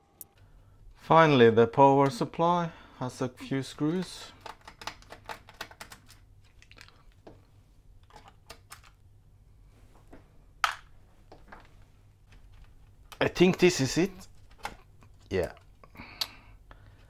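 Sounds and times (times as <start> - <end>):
fingers on plastic case: 4.3 - 6.2.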